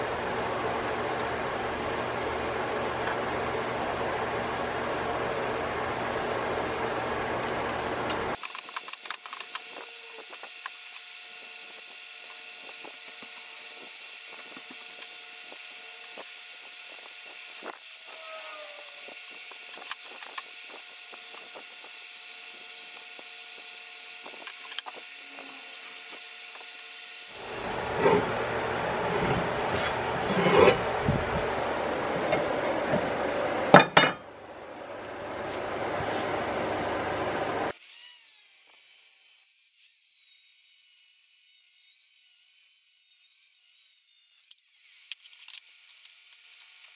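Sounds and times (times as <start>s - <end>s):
power tool grinding steel: 9.5s - 31.0s.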